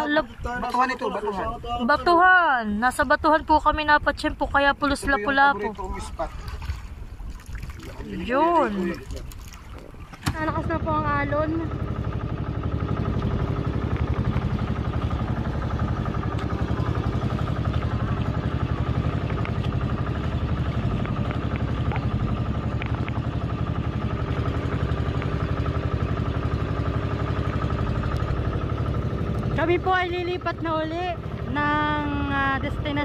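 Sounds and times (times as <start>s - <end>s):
boat engine running: 0.0s - 33.0s.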